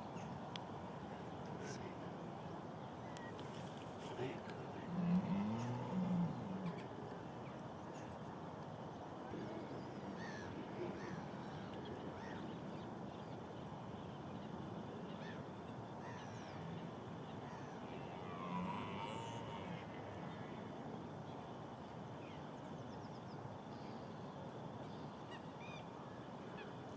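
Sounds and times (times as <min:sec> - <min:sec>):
steady background hiss: 0:00.0 - 0:26.9
deer stag roaring: 0:04.9 - 0:06.8, 0:17.9 - 0:20.1.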